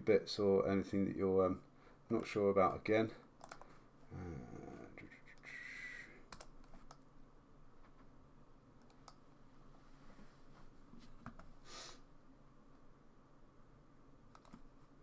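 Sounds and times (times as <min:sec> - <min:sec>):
computer mouse clicks: 0:03.4 - 0:03.7, 0:06.3 - 0:07.1, 0:08.8 - 0:09.2, 0:14.3 - 0:14.7
short breathy hiss: 0:11.6 - 0:12.1.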